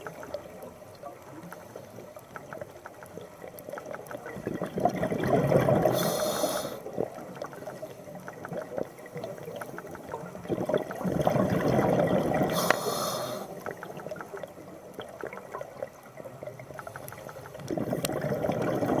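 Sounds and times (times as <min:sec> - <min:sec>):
bubbly gurgling exhalations underwater: 0:03.7 - 0:14.2, 0:17.6 - 0:19.0
regulator hiss: 0:05.9 - 0:06.8, 0:12.5 - 0:13.6.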